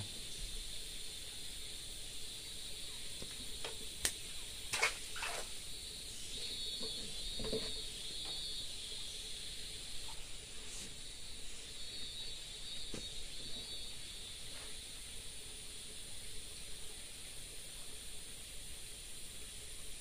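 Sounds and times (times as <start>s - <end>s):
high insect drone: 0.0s - 20.0s
fish splashing into water: 4.0s - 5.6s.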